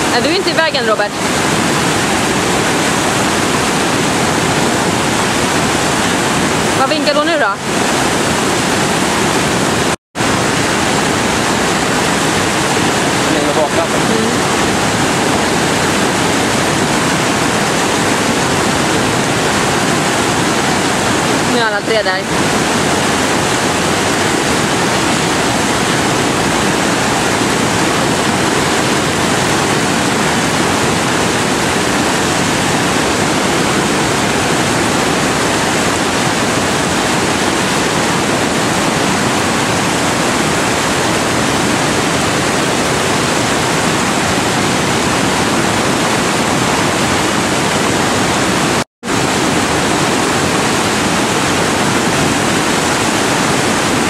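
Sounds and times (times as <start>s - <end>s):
river rapids rushing: 0.0s - 54.0s.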